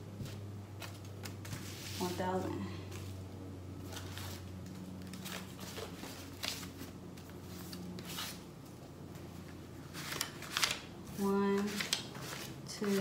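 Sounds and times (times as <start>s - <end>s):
low steady hum: 0.0s - 13.0s
banknotes rustling: 3.8s - 8.5s, 9.5s - 13.0s.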